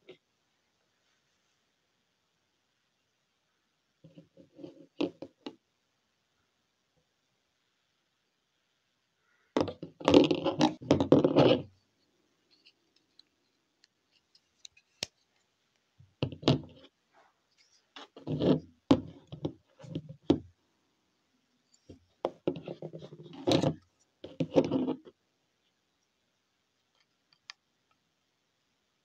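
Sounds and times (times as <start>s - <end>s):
knives knocking and scraping on table: 18.0s - 20.4s, 22.3s - 25.1s.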